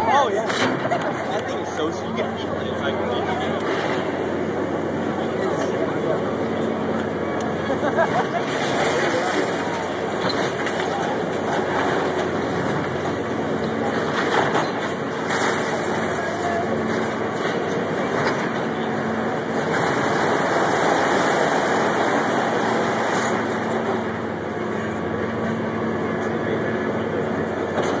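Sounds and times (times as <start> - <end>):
excavator engine drone: 0.0 - 28.0
building material crunching: 8.2 - 25.2.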